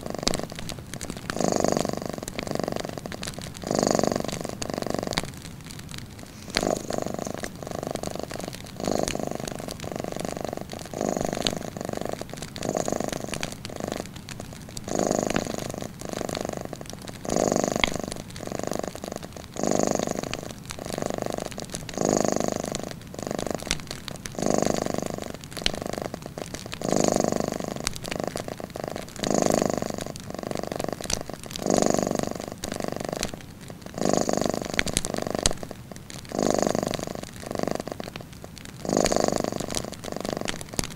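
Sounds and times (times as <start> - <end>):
cat purring: 0.0 - 40.9
wood fire crackling: 0.0 - 40.9.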